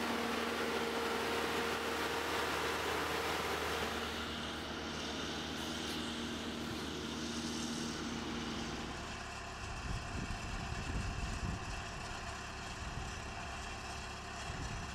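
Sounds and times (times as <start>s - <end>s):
drilling rig engine running: 0.0s - 10.7s.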